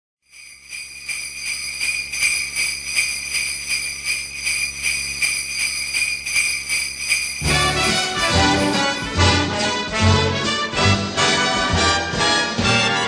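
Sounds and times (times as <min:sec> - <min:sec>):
sleigh bells shaken: 0:00.3 - 0:10.4.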